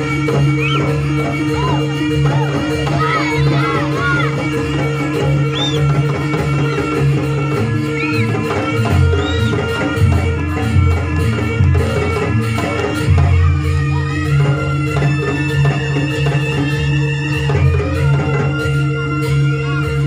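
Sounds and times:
heavy low drum beats: 0.0s - 20.0s
loud ensemble music with drone: 0.0s - 20.0s.

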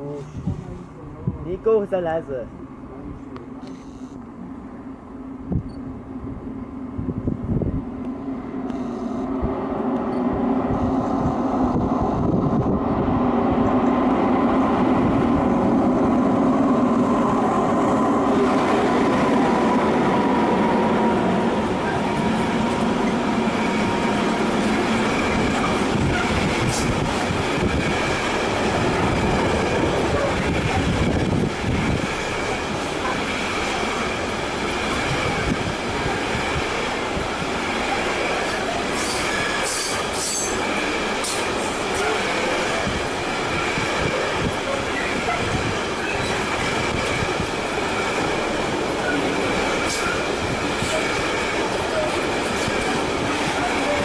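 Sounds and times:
train wheels rumbling on rails: 5.2s - 54.0s
high wheel squeal: 44.9s - 46.4s.

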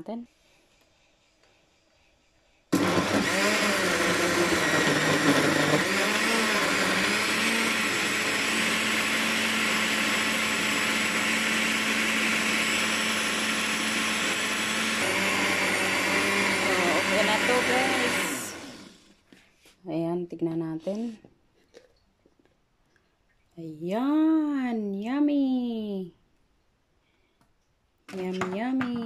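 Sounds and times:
blender motor running: 2.7s - 19.2s.

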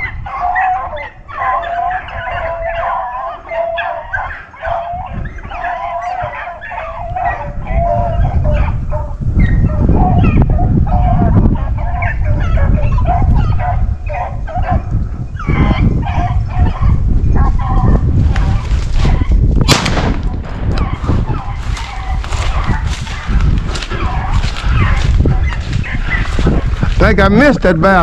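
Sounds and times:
hounds baying: 0.0s - 19.4s, 20.4s - 27.5s
steady low rumble: 17.0s - 27.1s
gunshot: 19.6s - 21.3s.

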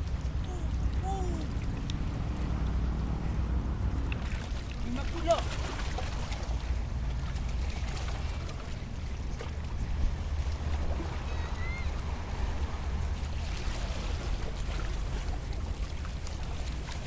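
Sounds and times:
sea water washing on rocks: 0.0s - 17.0s
wind rumble on microphone: 0.0s - 17.0s.

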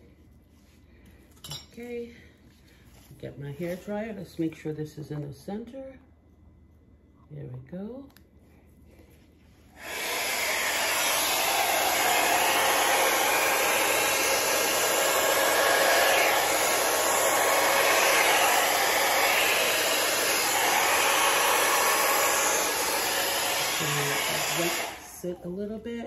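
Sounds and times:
hair dryer blowing air: 9.7s - 25.6s.

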